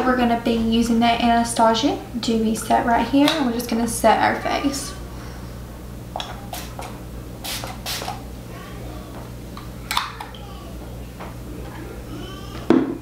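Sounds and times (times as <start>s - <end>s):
pump bottle spraying mist: 6.2s - 8.3s.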